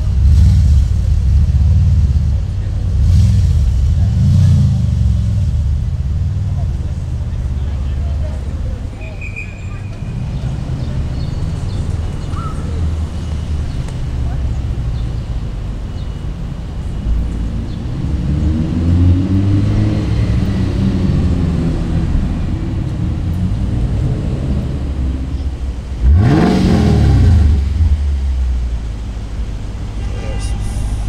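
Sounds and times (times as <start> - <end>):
car engine revving sharply: 0.0 - 6.4, 17.4 - 31.0
sports car engine pulling away: 0.0 - 9.0, 16.8 - 29.9.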